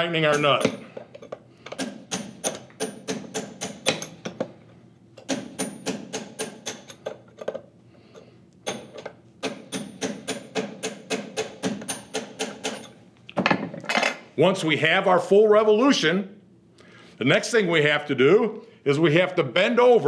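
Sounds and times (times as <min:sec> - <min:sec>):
hammer tapping metal: 0:00.2 - 0:01.0, 0:01.7 - 0:04.5, 0:05.2 - 0:07.2, 0:08.6 - 0:12.9.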